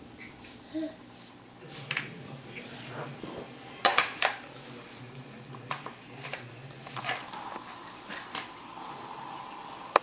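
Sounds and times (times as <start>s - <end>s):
plastic clicking on tile floor: 8.1s - 8.5s.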